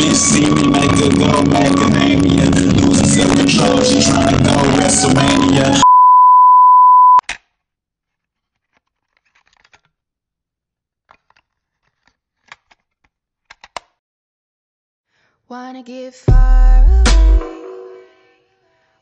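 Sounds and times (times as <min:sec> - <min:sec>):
music: 0:00.0 - 0:05.8, 0:16.2 - 0:19.0
electronic beep tone: 0:05.8 - 0:07.2.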